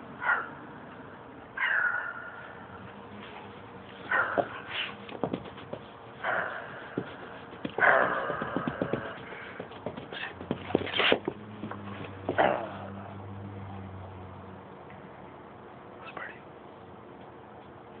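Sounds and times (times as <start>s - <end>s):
scuffling and small knocks: 3.2s - 6.0s, 6.9s - 12.6s.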